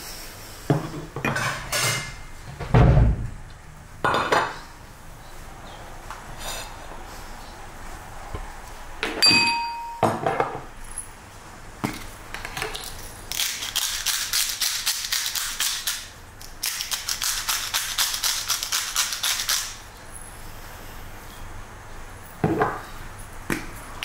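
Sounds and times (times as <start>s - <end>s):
sharp glassy clink: 9.2s - 10.2s.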